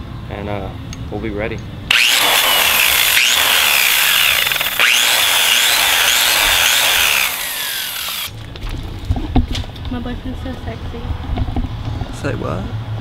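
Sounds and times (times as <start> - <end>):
wire brush grinder on metal: 1.9 - 8.3.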